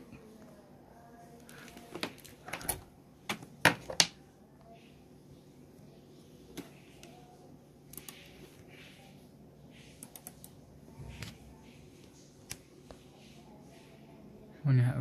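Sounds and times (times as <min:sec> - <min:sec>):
keyboard and mouse clicks: 0:07.9 - 0:08.3, 0:09.9 - 0:10.6.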